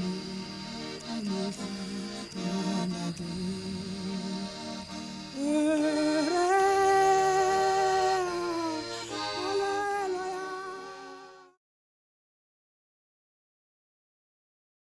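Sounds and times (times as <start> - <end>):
slow melody of long notes: 0.0 - 11.6.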